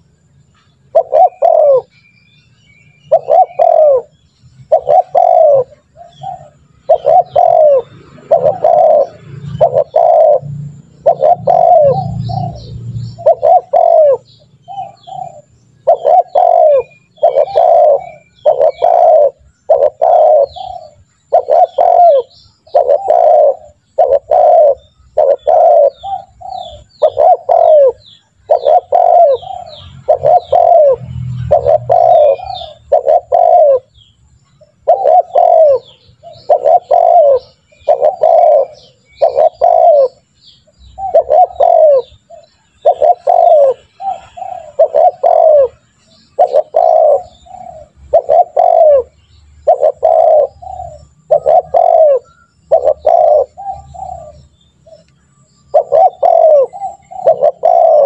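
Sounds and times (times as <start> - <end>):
dove cooing: 0.9 - 1.9, 3.0 - 58.0.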